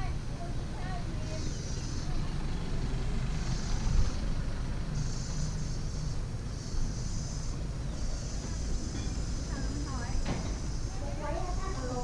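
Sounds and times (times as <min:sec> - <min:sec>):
low engine rumble: 0:00.0 - 0:12.0
wind noise on microphone: 0:02.4 - 0:04.9.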